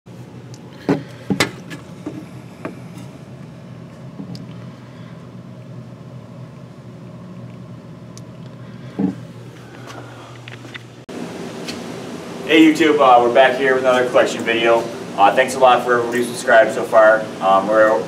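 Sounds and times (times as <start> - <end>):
low machine hum: 0.1 - 18.0.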